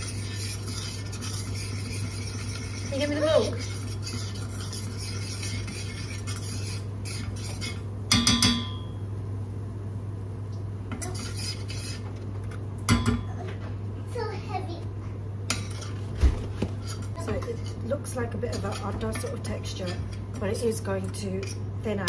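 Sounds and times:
metal spoon scraping a saucepan: 0.0s - 8.4s, 11.0s - 12.2s, 15.5s - 16.0s, 16.8s - 21.7s
steady low hum: 0.0s - 22.0s.

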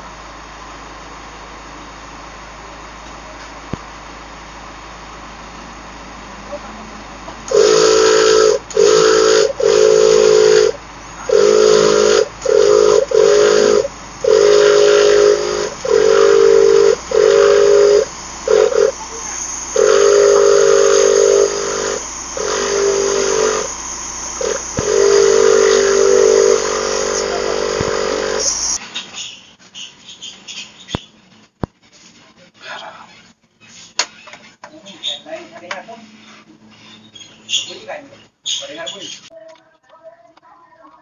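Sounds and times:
air hissing through tyre valve: 7.5s - 28.8s.

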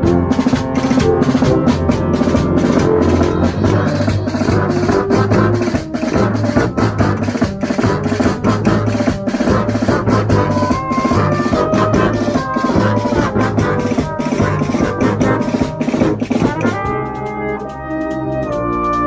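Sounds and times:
brass melody notes: 0.0s - 19.0s
drum kit beat with cymbals: 0.0s - 19.0s
tubas holding low notes: 0.0s - 19.0s.

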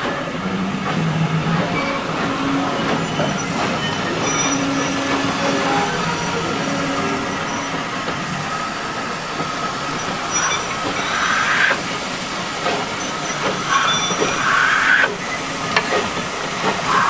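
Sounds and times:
steel wheels rumbling on track: 0.0s - 17.0s
wheels squealing: 1.6s - 12.0s, 12.6s - 15.8s.

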